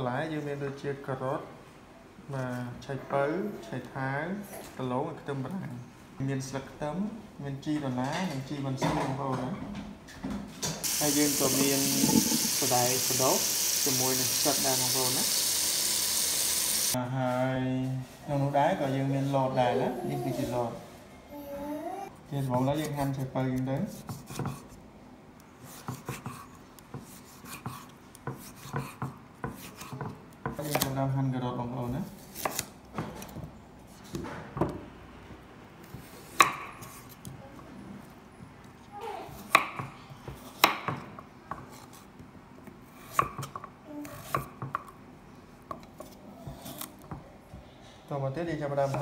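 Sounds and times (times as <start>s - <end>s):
knife chopping on wooden board: 23.9s - 24.7s, 25.7s - 30.9s, 35.8s - 37.2s, 39.5s - 41.9s.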